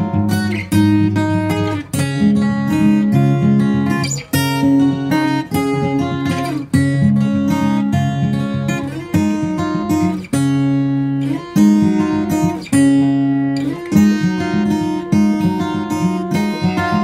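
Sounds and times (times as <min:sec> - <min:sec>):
strummed acoustic guitar chords: 0:00.0 - 0:17.0.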